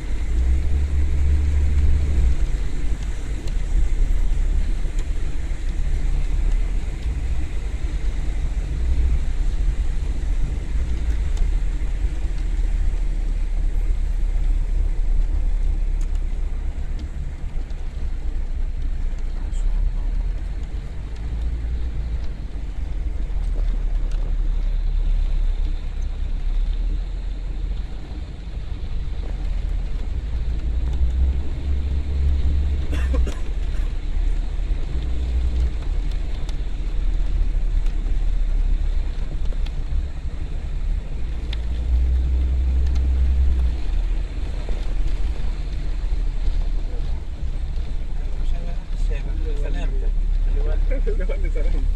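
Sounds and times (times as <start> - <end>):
heavy rain and wind: 0.0 - 51.9
road noise inside car: 0.0 - 51.9.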